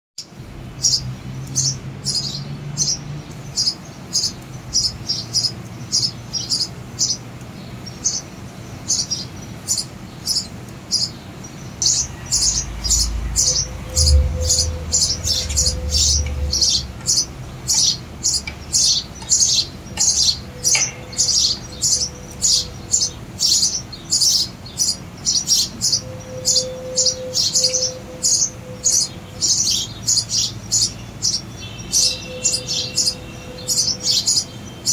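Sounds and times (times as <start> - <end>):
nestlings begging chirps: 0.8 - 34.9
low rumble: 11.8 - 20.6.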